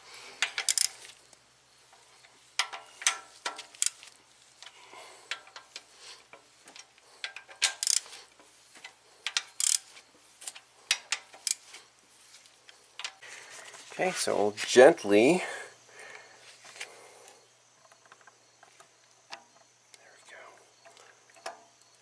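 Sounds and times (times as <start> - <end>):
hand ratchet clicking: 0.4 - 1.1, 2.6 - 8.2, 8.8 - 11.8
sharp metal clicks: 0.4 - 1.1, 1.9 - 8.1, 8.8 - 11.7.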